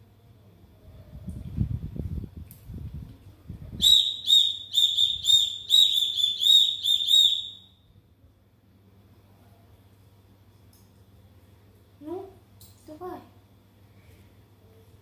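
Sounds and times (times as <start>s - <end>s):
toy whistle toots: 3.8s - 7.8s.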